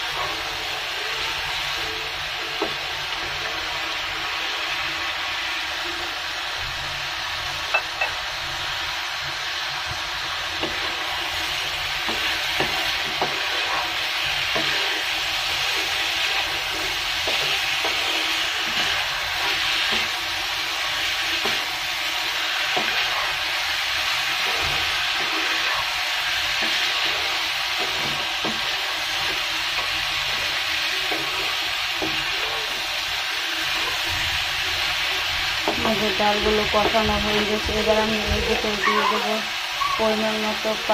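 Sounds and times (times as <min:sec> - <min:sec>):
food sizzling in hot oil: 0:00.0 - 0:40.9
wooden spatula scraping a wok: 0:09.9 - 0:40.2.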